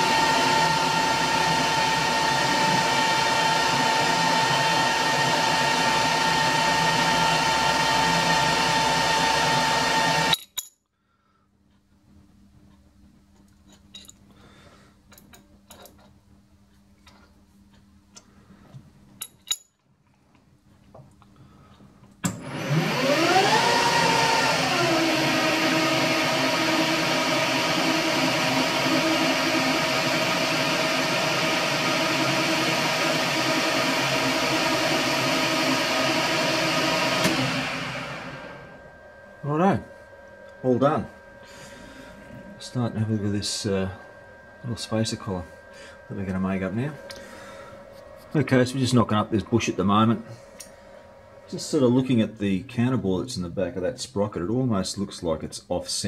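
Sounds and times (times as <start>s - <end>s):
metal lathe whining: 0.0s - 10.4s, 22.3s - 52.4s.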